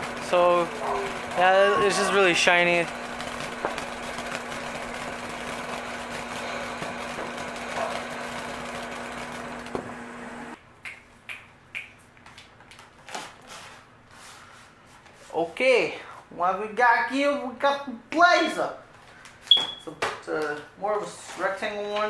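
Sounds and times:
firework fountain hissing and crackling: 0.0 - 8.7.

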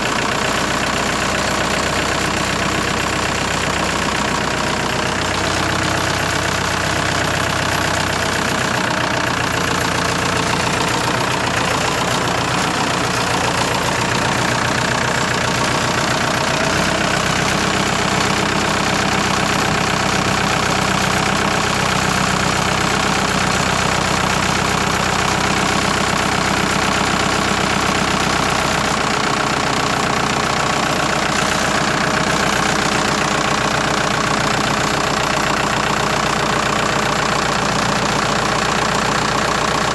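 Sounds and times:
tractor diesel engine running: 0.0 - 39.9.

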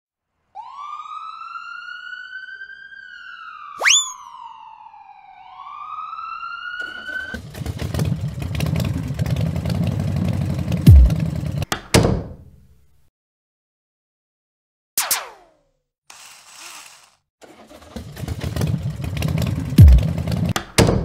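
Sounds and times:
police siren wailing: 0.6 - 7.4.

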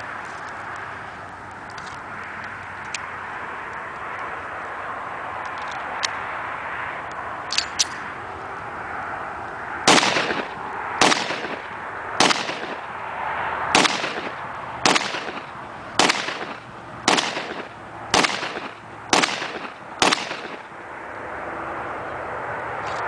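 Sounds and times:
pistol shots with echo: 9.9 - 12.9, 13.8 - 20.7.

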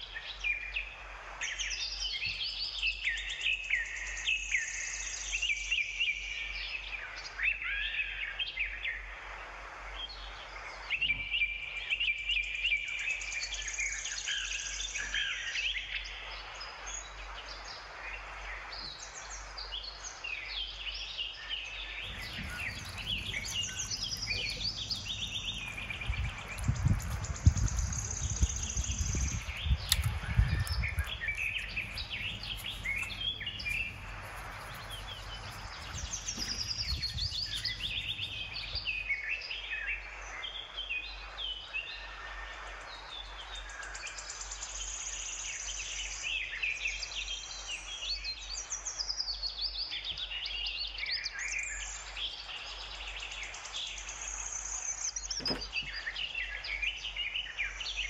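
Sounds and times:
handling noise: 22.0 - 39.1, 55.4 - 56.0
birds chirping and singing: 22.0 - 39.2.

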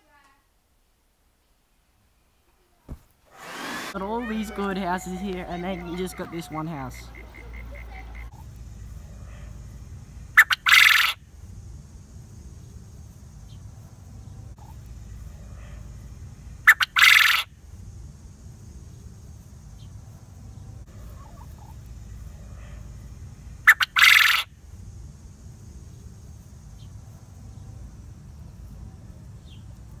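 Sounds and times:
quail crowing: 3.6 - 8.4, 10.4 - 11.2, 16.6 - 17.5, 20.9 - 22.9, 23.6 - 24.5
steady low hum: 3.9 - 30.0.

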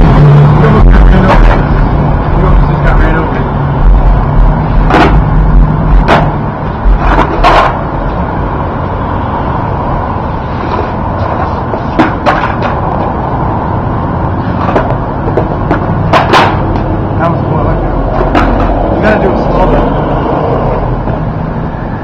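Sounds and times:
steady background rumble: 0.0 - 22.0
skateboard clacking on concrete: 6.0 - 7.8, 11.2 - 13.2, 14.5 - 16.9, 18.1 - 18.8.

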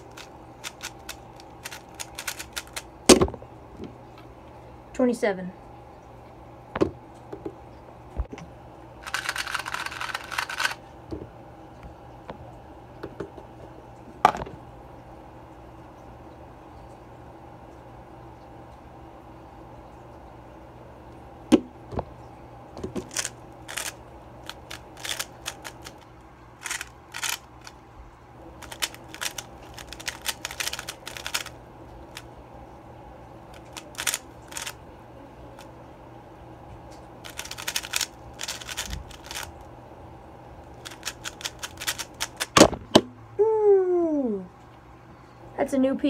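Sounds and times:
plastic cube clicking as turned: 0.0 - 2.8, 9.0 - 10.8, 23.0 - 26.0, 26.6 - 27.5, 28.6 - 31.5, 33.6 - 34.8, 37.2 - 39.5, 40.8 - 42.6
person exclaiming ohh: 43.4 - 44.5.

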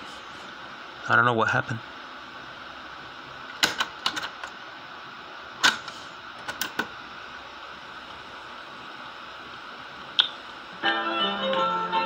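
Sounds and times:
cassette buttons clicking: 3.5 - 4.5, 6.4 - 6.9.

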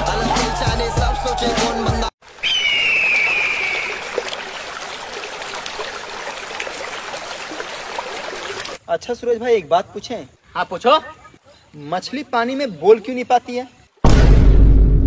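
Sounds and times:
background music: 0.0 - 2.1
water rushing: 2.2 - 8.8
bird calling: 2.4 - 4.4.

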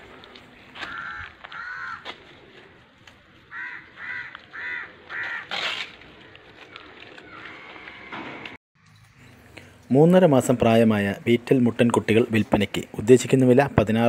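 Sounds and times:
crow cawing: 0.8 - 2.2, 3.5 - 5.6.

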